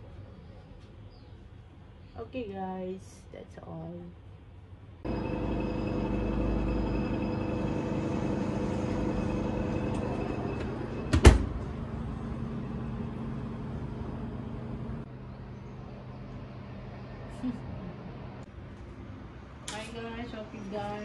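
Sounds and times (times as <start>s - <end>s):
electric oven humming: 5.0s - 15.1s
oven door banging shut: 10.6s - 11.6s.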